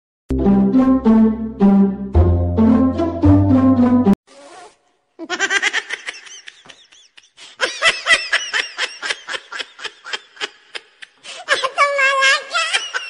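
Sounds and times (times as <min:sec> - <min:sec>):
high-pitched laughing: 0:05.2 - 0:13.0.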